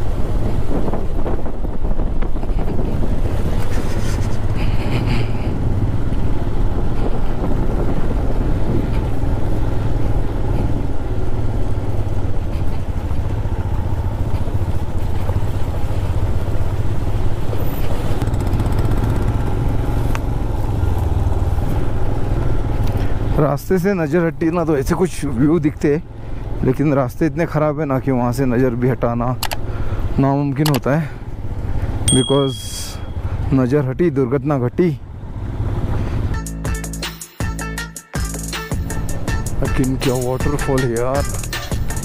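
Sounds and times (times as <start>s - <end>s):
motorcycle engine running: 0.1s - 23.3s, 31.2s - 33.5s.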